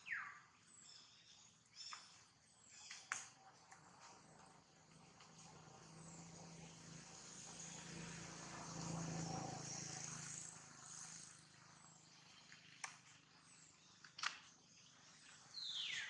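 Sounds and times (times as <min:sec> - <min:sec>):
vehicle engine hum passing: 0:03.8 - 0:13.9.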